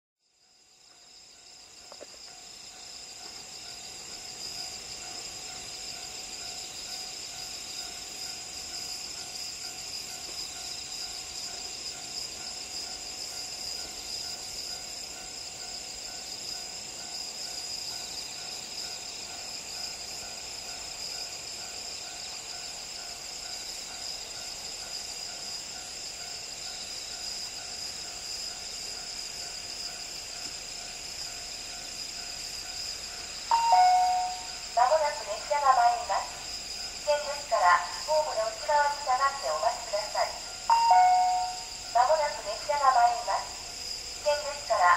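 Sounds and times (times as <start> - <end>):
crickets and insects chirping: 0.2 - 44.9.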